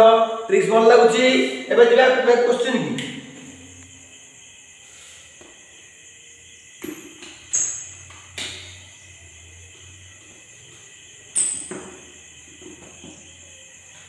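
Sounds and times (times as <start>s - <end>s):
faint steady hum: 0.0s - 14.0s
sharp ringing knocks: 6.8s - 9.0s.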